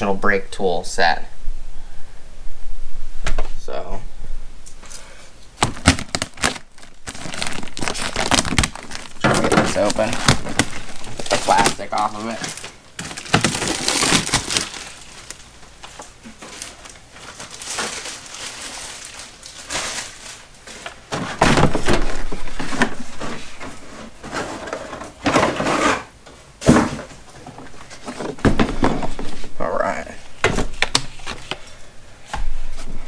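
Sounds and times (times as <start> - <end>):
plastic wrapping tearing and crinkling: 5.6 - 23.6.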